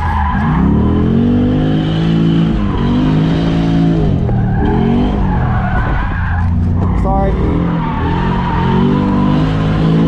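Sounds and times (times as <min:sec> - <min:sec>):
car engine revving high: 0:00.0 - 0:10.0.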